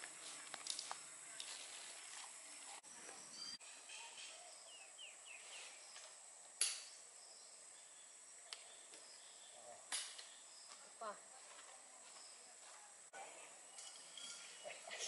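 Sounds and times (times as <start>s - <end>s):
bird chirps: 3.0s - 6.1s.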